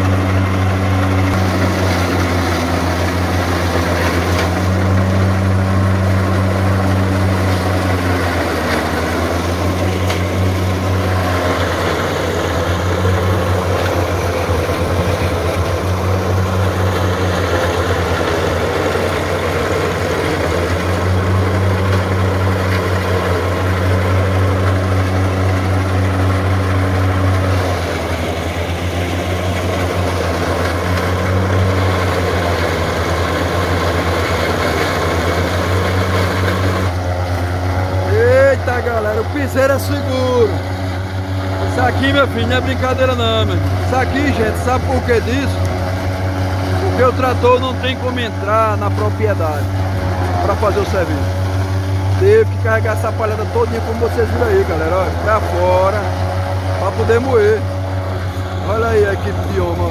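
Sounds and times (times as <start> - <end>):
forage chopper grinding stalks: 0.0 - 59.9
tractor diesel engine running: 0.0 - 59.9.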